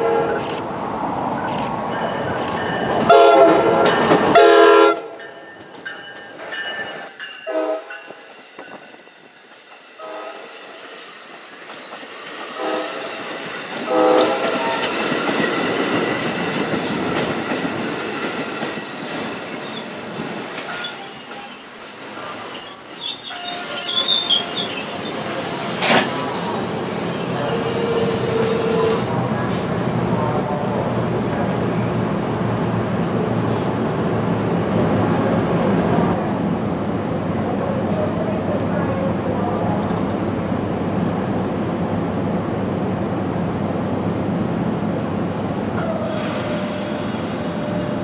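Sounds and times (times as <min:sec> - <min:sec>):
train horn blasts: 0:00.0 - 0:00.4, 0:03.1 - 0:05.1, 0:07.4 - 0:07.9, 0:10.0 - 0:10.6, 0:12.5 - 0:15.0
train coaches passing: 0:00.0 - 0:48.0
high wheel squeal: 0:11.6 - 0:29.3.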